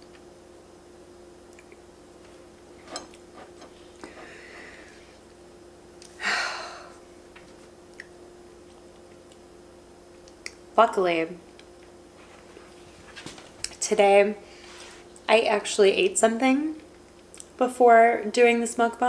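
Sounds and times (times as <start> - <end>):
fork scraping a plate: 2.8 - 3.8
rush of breath: 4.0 - 5.2.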